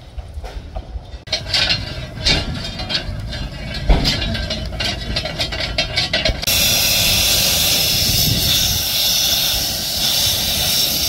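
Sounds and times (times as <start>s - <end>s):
metallic clinks and rattles: 1.2s - 6.6s.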